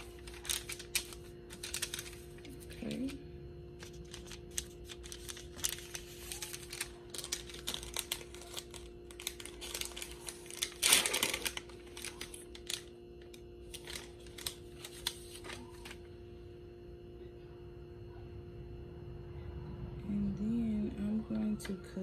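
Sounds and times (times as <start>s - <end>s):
wrapper tearing: 0.0s - 3.2s, 3.8s - 16.0s
gauze packet crinkling: 0.0s - 16.1s.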